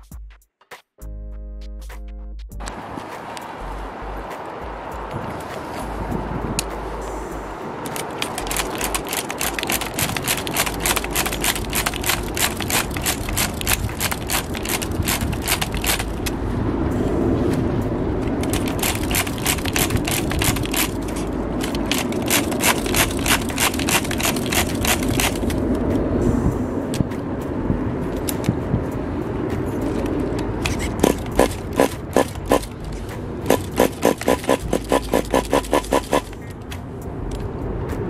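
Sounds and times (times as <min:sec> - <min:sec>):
fast regular clicking and rattling: 0:07.9 - 0:16.4, 0:18.4 - 0:25.8, 0:29.9 - 0:36.5.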